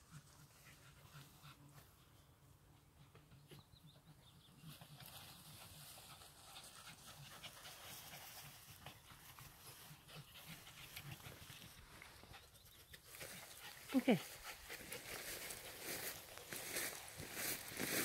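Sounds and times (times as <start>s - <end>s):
dog panting: 4.8s - 12.6s, 13.2s - 16.6s.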